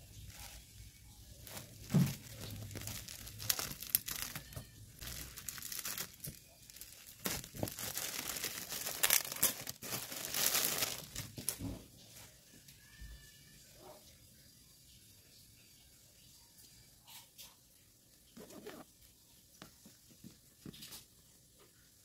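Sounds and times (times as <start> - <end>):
plastic wrap crinkling: 0.0 - 11.8
soft thud: 1.9 - 2.3.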